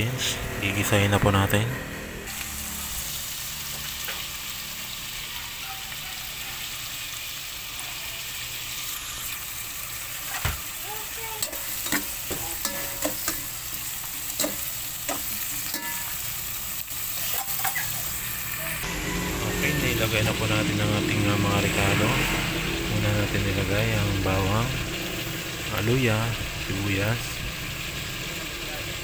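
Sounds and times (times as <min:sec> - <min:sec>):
food sizzling in hot oil: 0:02.3 - 0:29.0
metal spoon scraping a pot: 0:11.4 - 0:13.6, 0:14.2 - 0:16.3.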